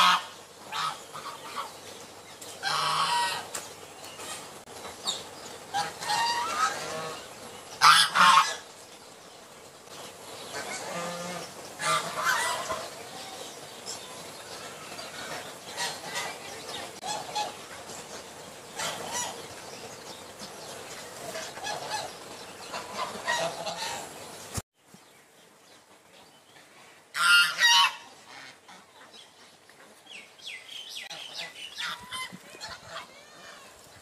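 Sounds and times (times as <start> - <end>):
geese honking: 0.0 - 1.8, 2.6 - 3.6, 5.6 - 8.7, 10.4 - 19.6, 20.9 - 24.2, 27.1 - 29.2, 31.0 - 33.8.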